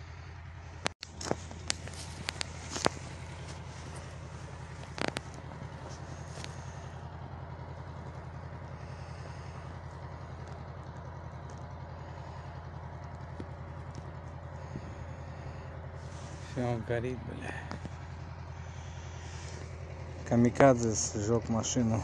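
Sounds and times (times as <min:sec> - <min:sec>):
low rumble: 0:00.0 - 0:22.0
fire burning: 0:00.2 - 0:22.0
faint ticks: 0:08.0 - 0:15.1.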